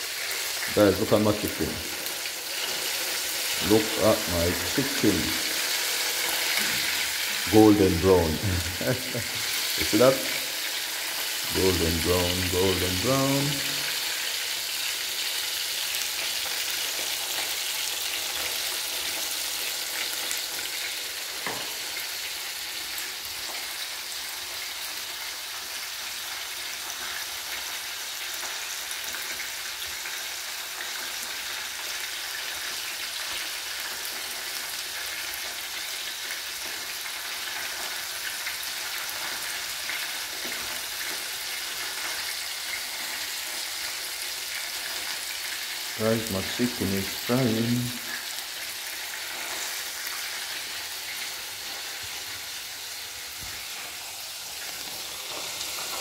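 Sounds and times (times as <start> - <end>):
chicken deep-frying in oil: 0.0 - 56.0.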